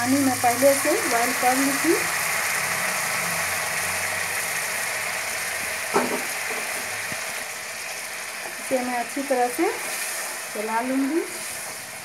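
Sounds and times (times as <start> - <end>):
oil sizzling and bubbling in pan: 0.0 - 12.0.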